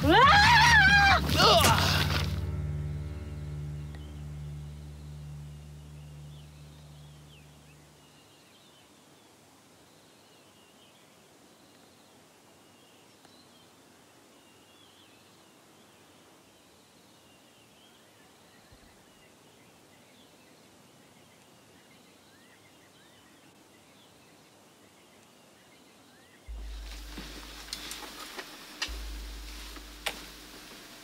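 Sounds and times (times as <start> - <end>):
faint bird chirps: 3.3 - 31.0
outdoor hiss: 26.5 - 31.0.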